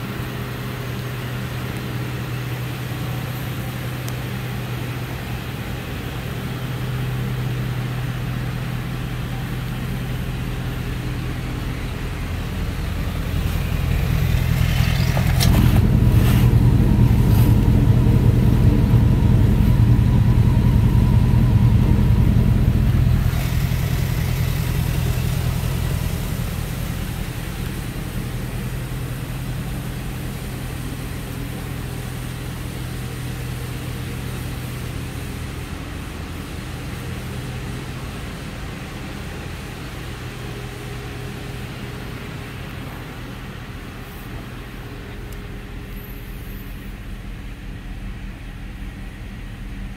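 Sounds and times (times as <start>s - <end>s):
pickup truck engine idling: 0.0s - 49.9s.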